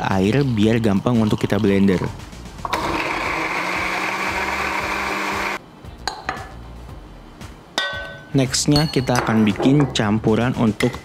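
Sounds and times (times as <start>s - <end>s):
electric blender grinding: 2.6s - 5.6s.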